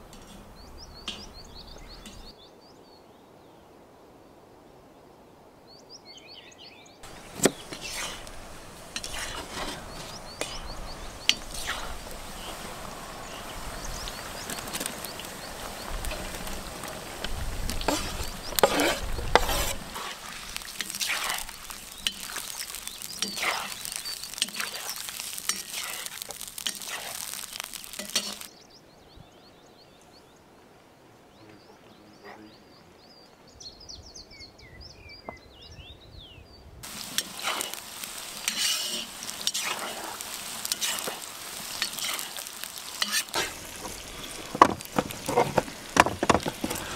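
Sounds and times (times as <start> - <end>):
peppers sizzling in pot: 0.0 - 2.3, 7.0 - 28.5, 36.8 - 46.9
birdsong: 0.0 - 3.7, 5.0 - 46.9
metal utensil scraping pot: 0.1 - 1.4, 2.0 - 2.3, 7.4 - 12.6, 16.0 - 27.2, 28.0 - 28.5, 38.4 - 40.1, 42.9 - 46.9.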